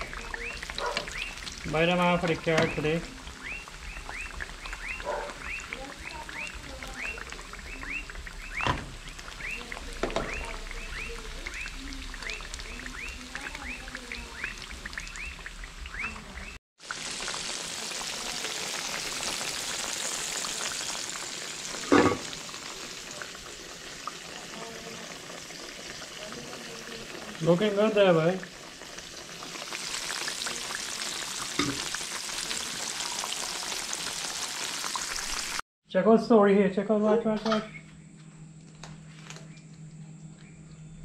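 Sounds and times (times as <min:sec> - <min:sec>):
fish sizzling in hot oil: 0:00.0 - 0:35.6
high falling chirps: 0:02.4 - 0:16.6.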